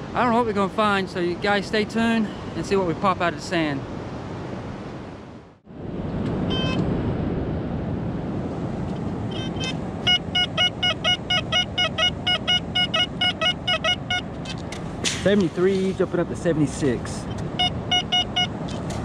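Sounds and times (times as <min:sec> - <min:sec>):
wind: 0:00.0 - 0:19.0
metal detector beeping: 0:06.5 - 0:06.8, 0:09.3 - 0:14.6, 0:17.2 - 0:18.6.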